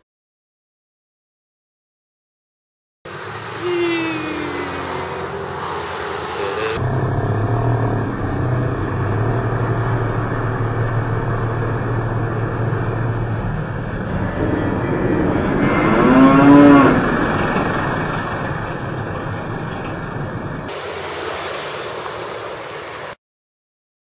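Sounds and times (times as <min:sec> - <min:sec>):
truck engine humming: 0:03.1 - 0:23.1
recorded cow mooing call: 0:14.1 - 0:17.3.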